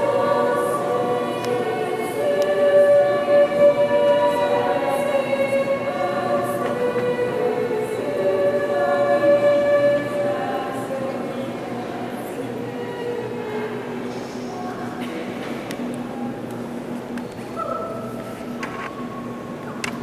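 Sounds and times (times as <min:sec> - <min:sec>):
choir singing long-held chords: 0:00.0 - 0:15.3.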